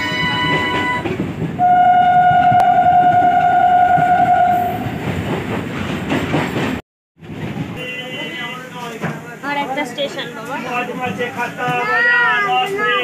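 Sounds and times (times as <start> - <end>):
train horn: 0.0 - 4.8
train rumble: 0.0 - 13.0.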